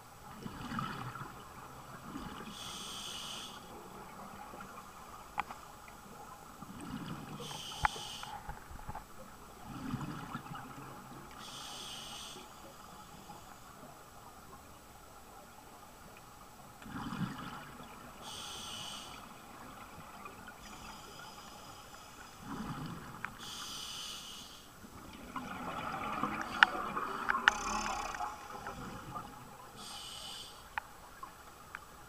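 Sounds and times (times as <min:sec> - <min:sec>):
regulator inhale hiss: 0:02.5 - 0:03.7, 0:07.4 - 0:08.4, 0:11.4 - 0:13.6, 0:18.2 - 0:19.3, 0:23.4 - 0:24.7, 0:29.8 - 0:30.7.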